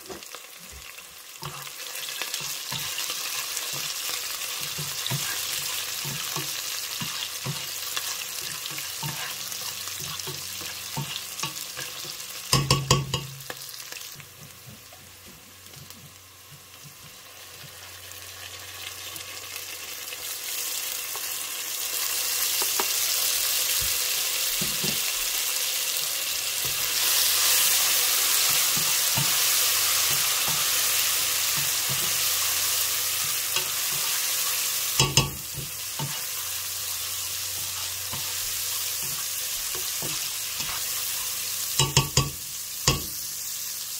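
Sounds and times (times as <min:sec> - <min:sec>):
onions sizzling in hot oil: 0:00.0 - 0:43.9
spatula scraping pot: 0:01.4 - 0:12.1, 0:37.5 - 0:42.2.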